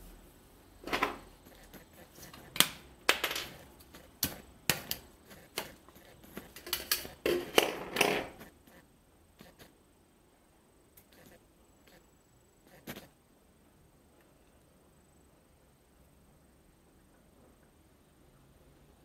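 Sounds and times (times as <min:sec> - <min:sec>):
plastic packaging clicks: 0:06.5 - 0:07.7.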